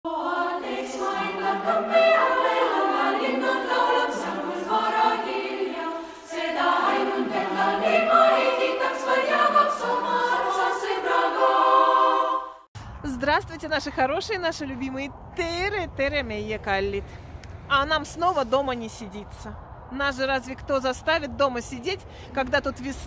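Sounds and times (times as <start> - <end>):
choir singing: 0.1 - 12.7.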